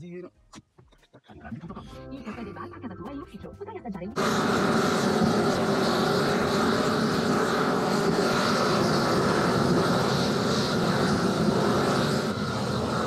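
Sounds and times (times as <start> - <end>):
roofing torches rushing: 4.2 - 13.0.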